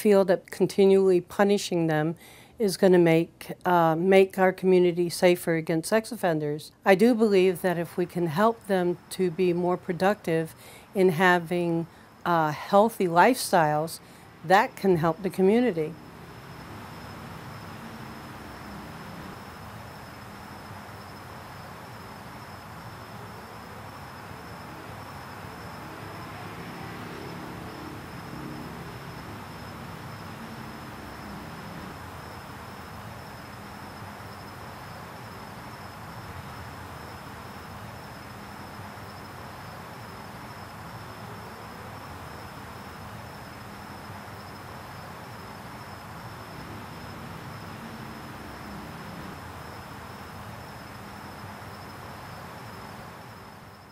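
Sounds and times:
insect trilling: 15.9 - 36.2.

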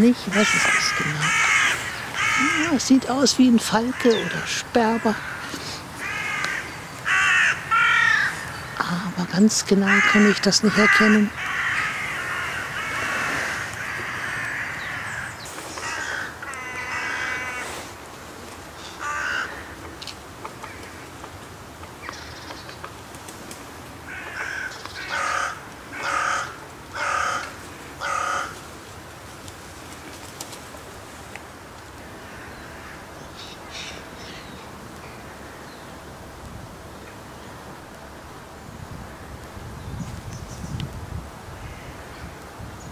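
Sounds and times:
crows cawing: 0.2 - 3.0, 3.7 - 8.8, 9.8 - 18.0, 18.8 - 19.8, 24.0 - 28.7, 31.9 - 34.4.

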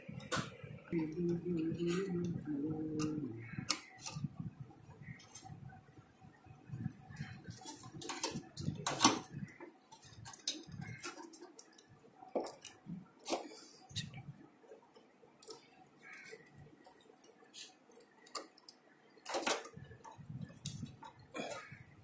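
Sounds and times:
wire connectors clicking: 3.0 - 4.4, 6.8 - 14.2, 15.4 - 21.7.

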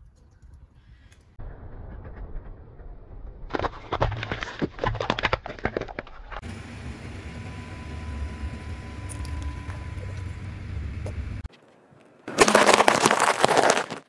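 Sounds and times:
low rumble: 0.4 - 4.4
plastic eggs cracking under tyre: 3.5 - 6.4, 12.3 - 14.0.

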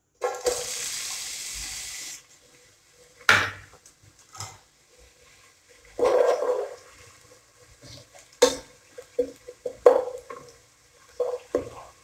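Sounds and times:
onion sizzling in hot oil: 0.2 - 12.0
kitchenware knocking: 3.3 - 3.7.

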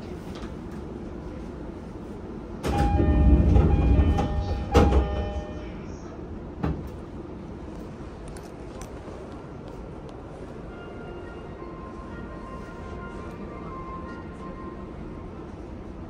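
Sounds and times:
train car hum: 0.0 - 16.0
train door sliding open: 2.6 - 5.7, 6.6 - 7.1
repeated chime tone: 2.8 - 5.6.

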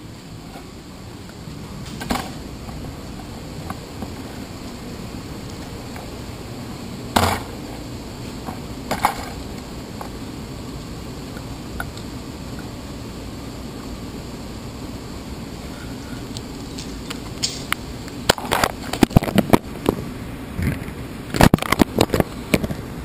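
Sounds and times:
room hum: 0.0 - 23.0
bicycle clunks: 7.2 - 7.6, 8.4 - 9.4.

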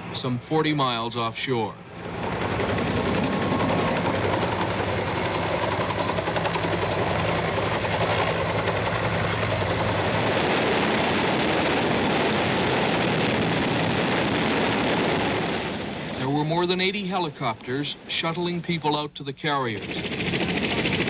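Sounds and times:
helicopter rotor and engine noise: 0.0 - 21.0.

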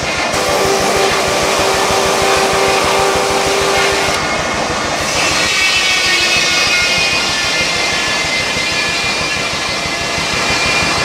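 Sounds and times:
saw whine: 0.0 - 11.0
sawmill machinery running: 0.0 - 11.0.

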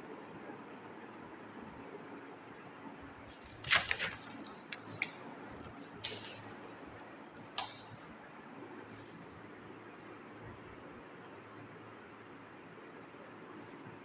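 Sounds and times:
paper pages rustling: 3.3 - 8.0.

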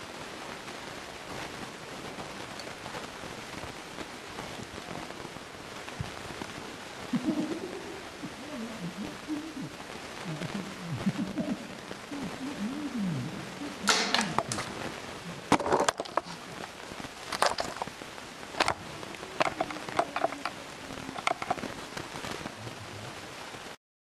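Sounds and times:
camera knocking and clattering: 15.5 - 16.2, 21.2 - 21.6.

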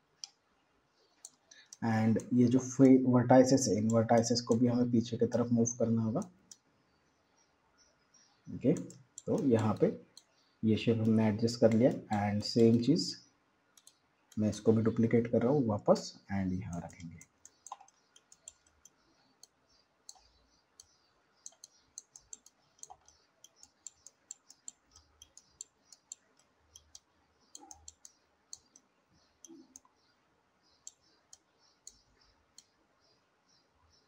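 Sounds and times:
computer mouse and keyboard clicks: 11.0 - 13.0, 13.8 - 15.0, 16.8 - 29.9.

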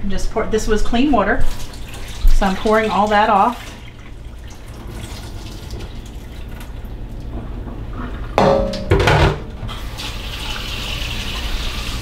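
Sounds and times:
metal bowl clanking: 8.2 - 9.6.

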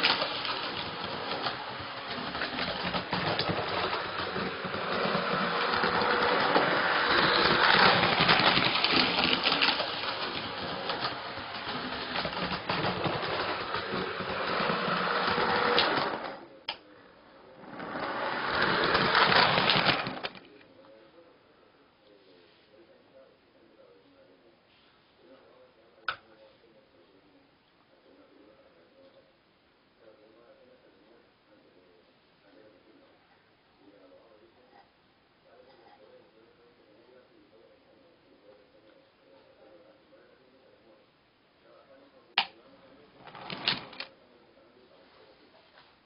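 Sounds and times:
model train wheels clattering: 0.0 - 16.4, 17.6 - 20.5, 43.2 - 44.1.

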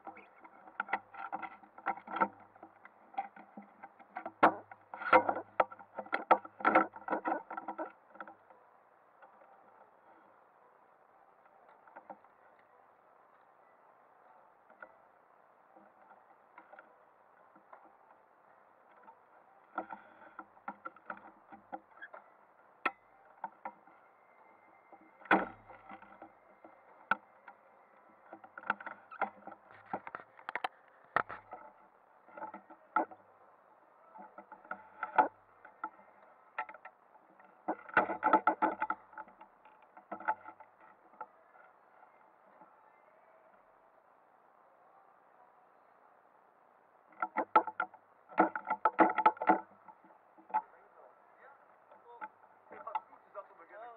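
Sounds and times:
faint steady hiss: 0.0 - 53.9
muffled knocks and clicks: 24.9 - 33.2, 34.1 - 41.7, 47.1 - 50.8.

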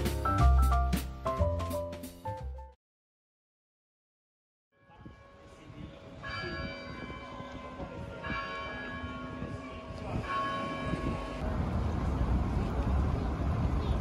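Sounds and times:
church bell tolling: 4.8 - 11.4
low street rumble: 7.0 - 14.0.

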